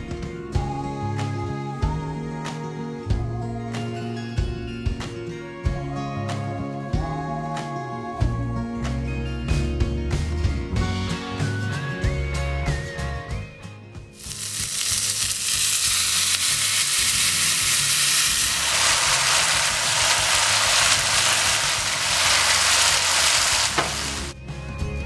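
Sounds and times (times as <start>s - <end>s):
sauce sizzling in a hot pan: 14.2s - 24.4s.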